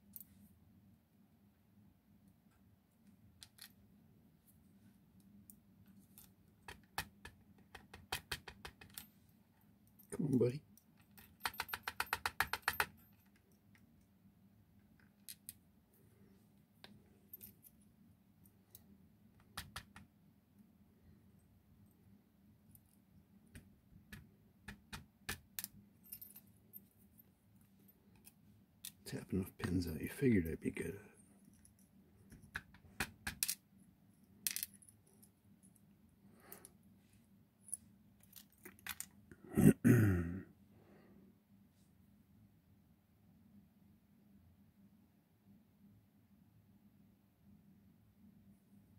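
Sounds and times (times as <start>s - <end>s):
metallic clicks of lock parts: 3.4s - 3.8s.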